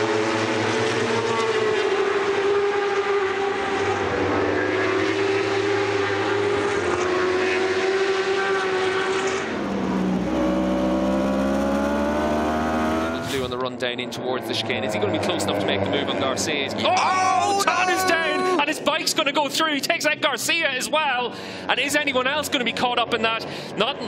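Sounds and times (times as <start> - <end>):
motorcycle engine revving high: 0.0 - 13.6.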